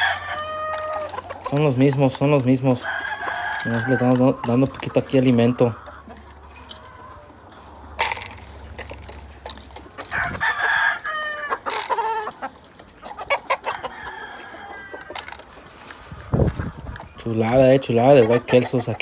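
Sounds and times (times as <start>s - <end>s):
rooster crowing: 0.0s - 1.1s, 10.1s - 11.6s, 13.7s - 15.4s.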